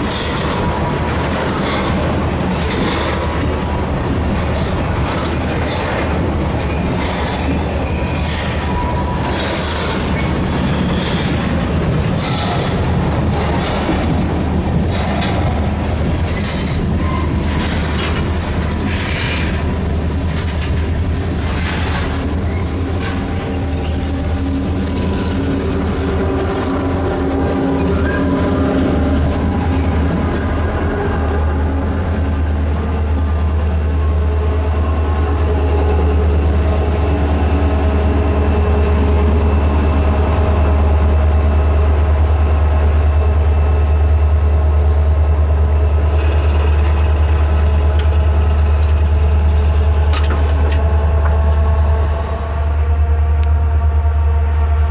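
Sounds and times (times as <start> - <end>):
train wheels clicking: 0.0 - 33.6
diesel locomotive engines droning: 0.0 - 54.9
wheel flange squeal: 33.2 - 33.6.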